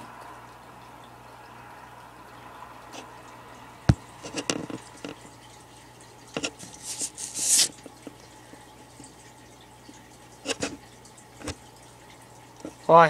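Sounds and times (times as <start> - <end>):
knock on glass tank: 3.9 - 4.6
scratchy rustle: 6.4 - 7.8.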